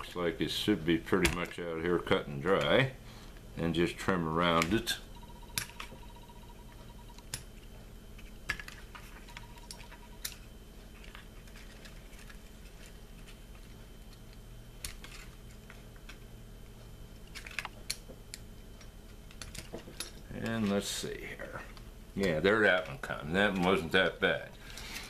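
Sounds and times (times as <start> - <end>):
faint steady high tone: 4.9 - 7.3, 9.2 - 10.4.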